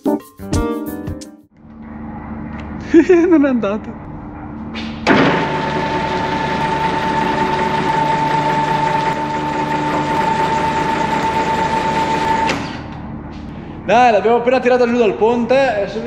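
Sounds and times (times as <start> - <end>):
car lift motor whining: 4.8 - 13.1.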